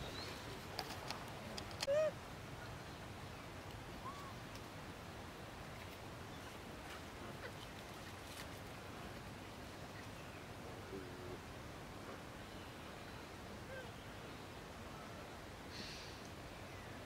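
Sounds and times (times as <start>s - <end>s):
steady low hiss: 0.0s - 17.0s
faint clicks: 0.7s - 2.0s.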